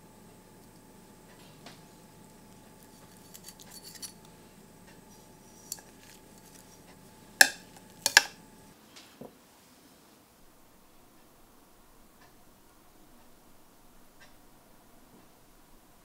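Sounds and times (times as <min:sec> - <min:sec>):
metal tongs clinking on plate: 0:02.8 - 0:04.3, 0:05.6 - 0:06.7, 0:07.4 - 0:08.4.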